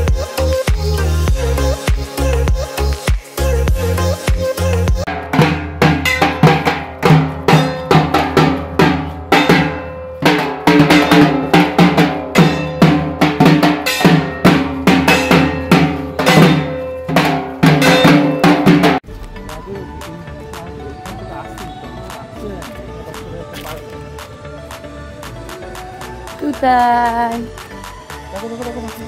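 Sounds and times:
barrel drum beaten with sticks: 0:05.1 - 0:19.6.

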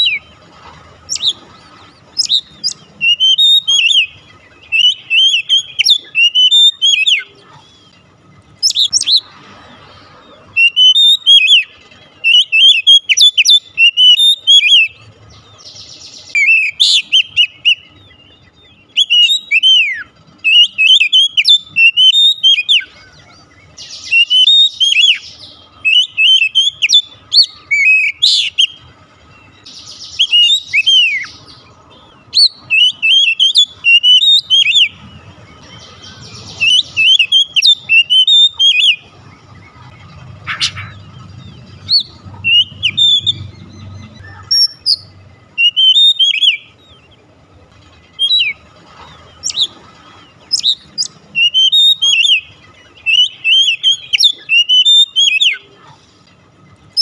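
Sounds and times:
bird singing whistled notes: 0:00.0 - 0:00.5, 0:01.1 - 0:09.3, 0:10.2 - 0:47.2, 0:48.1 - 0:49.8, 0:50.4 - 0:55.7.

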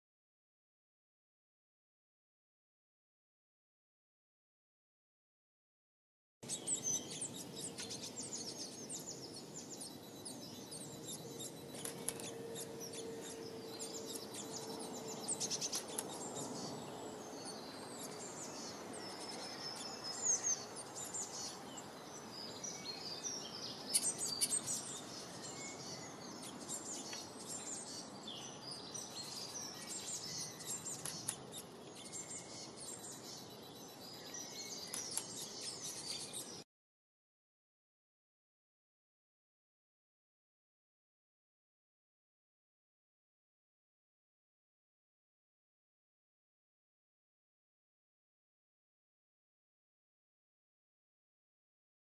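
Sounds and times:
small songbirds chirping: 0:06.4 - 0:36.6.

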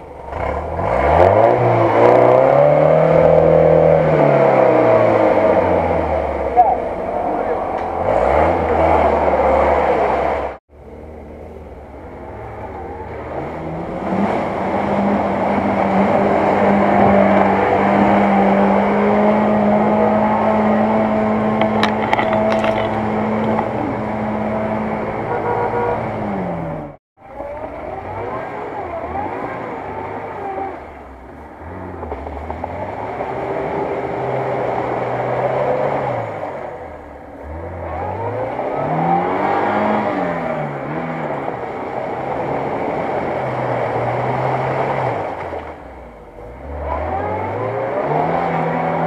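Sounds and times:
car engine revving hard: 0:00.0 - 0:10.6, 0:12.5 - 0:45.6, 0:46.3 - 0:49.0
wheels churning through mud: 0:12.3 - 0:25.3, 0:27.2 - 0:49.0.

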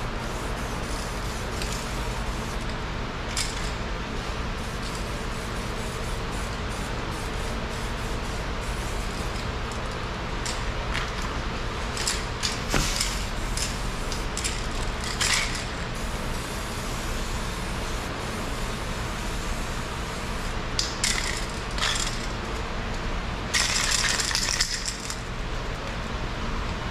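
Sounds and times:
low shop hum: 0:00.0 - 0:26.9
metallic rattle of spray can: 0:11.9 - 0:15.8, 0:20.8 - 0:22.3, 0:23.5 - 0:25.2.

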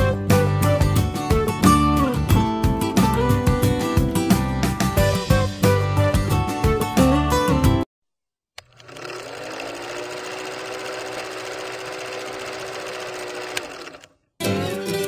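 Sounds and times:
film projector whirring and rattling: 0:08.6 - 0:14.2.

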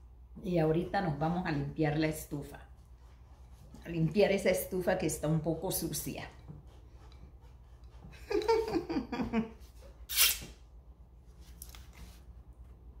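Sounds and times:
low steady hum: 0:00.0 - 0:13.0
short sharp hiss: 0:10.1 - 0:10.6.

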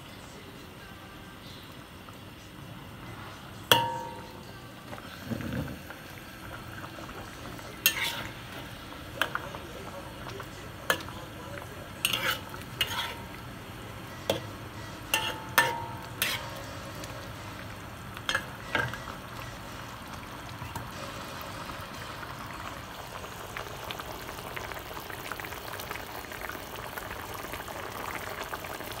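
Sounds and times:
food simmering and bubbling: 0:01.5 - 0:29.0
metal spatula scraping a wok: 0:07.8 - 0:08.6, 0:12.0 - 0:13.3, 0:15.1 - 0:16.8.

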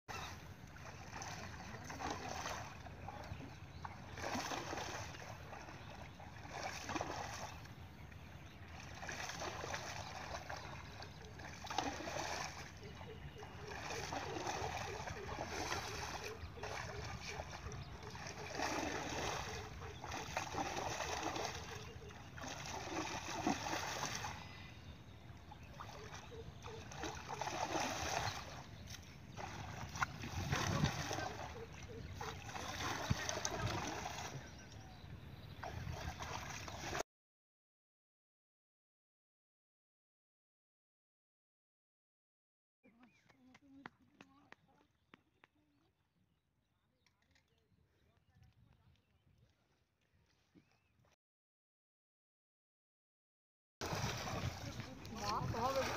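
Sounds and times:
pole splashing in water: 0:00.1 - 0:07.7, 0:08.6 - 0:24.4, 0:25.6 - 0:34.6, 0:35.6 - 0:37.0, 0:53.8 - 0:55.9.

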